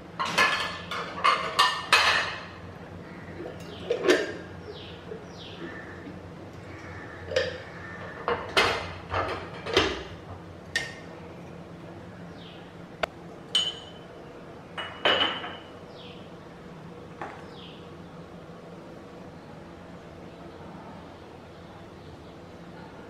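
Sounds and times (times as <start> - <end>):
cups clinking against wire rack: 0.2 - 2.5, 3.5 - 4.5, 7.2 - 11.0, 13.5 - 14.0, 14.8 - 15.7.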